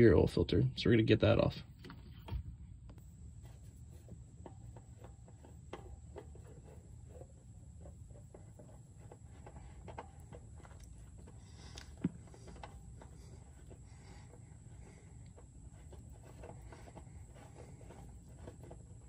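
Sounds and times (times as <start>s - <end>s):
low steady rumble: 0.0s - 19.0s
light hand scrapes: 3.0s - 19.0s
clicks of oil filter loosening: 4.0s - 18.9s.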